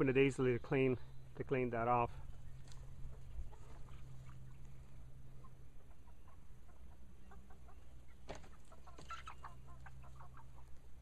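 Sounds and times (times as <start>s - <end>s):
hens clucking: 0.0s - 11.0s.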